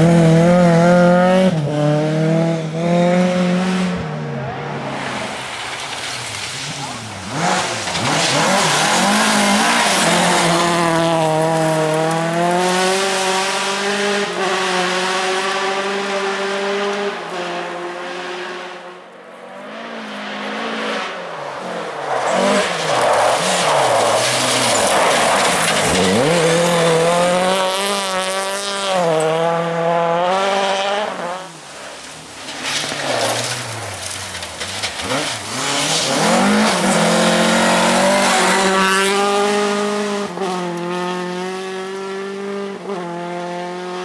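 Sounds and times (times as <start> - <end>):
rally car engine revving: 0.0 - 19.0, 19.6 - 44.0.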